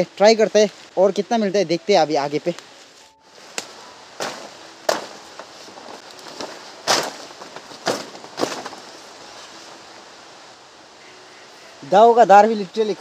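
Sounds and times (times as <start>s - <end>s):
leaves rustling: 0.0s - 13.0s
blade slashing plant stalks: 3.4s - 9.0s.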